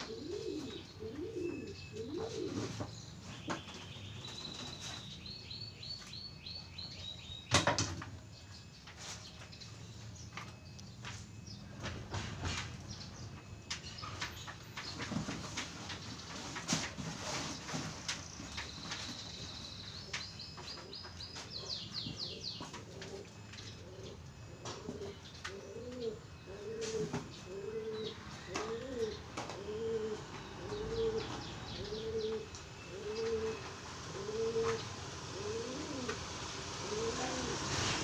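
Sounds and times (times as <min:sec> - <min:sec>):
dove cooing: 0:00.0 - 0:03.0, 0:21.6 - 0:38.0.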